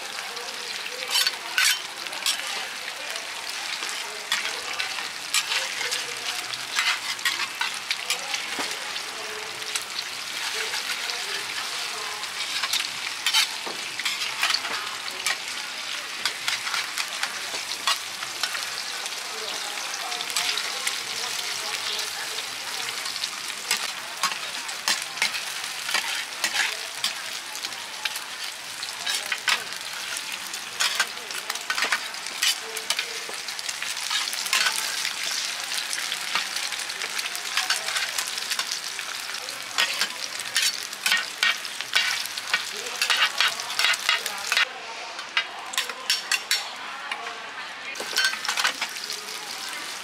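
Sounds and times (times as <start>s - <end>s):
omelettes sizzling in hot oil: 0.0s - 47.2s, 47.9s - 50.0s
metal spatulas scraping a pan: 1.0s - 2.6s, 3.4s - 9.0s, 9.7s - 19.2s, 23.0s - 27.2s, 28.1s - 35.5s, 36.3s - 38.9s, 39.7s - 44.7s, 45.4s - 46.7s, 48.0s - 49.1s.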